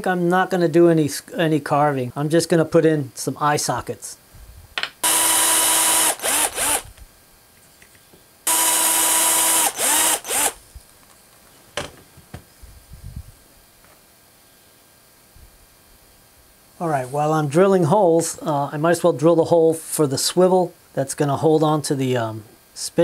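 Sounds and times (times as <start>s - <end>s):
cordless drill whining: 5.0s - 6.9s, 8.5s - 10.6s.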